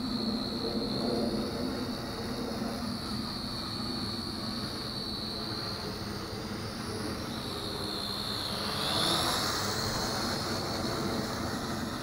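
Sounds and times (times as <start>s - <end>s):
toy drone motors whining: 5.5s - 12.0s.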